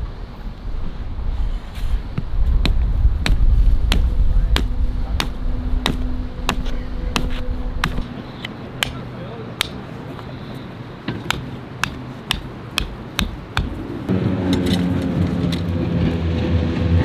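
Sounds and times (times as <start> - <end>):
wind rumbling on microphone: 0.0 - 8.2
rock hammering tent stake: 2.6 - 8.1, 8.8 - 9.8, 11.1 - 13.8.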